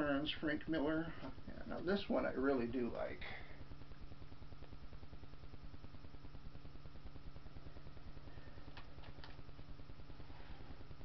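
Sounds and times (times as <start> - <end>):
low electrical hum and hiss: 0.0 - 11.0
faint clicks from handled items: 8.7 - 9.4.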